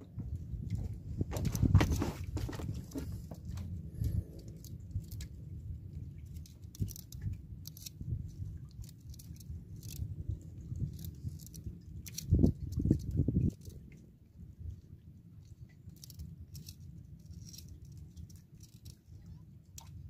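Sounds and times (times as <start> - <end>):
low uneven rumble: 0.0 - 20.0
fishing line clicks and scrapes: 0.7 - 13.8, 15.4 - 20.0.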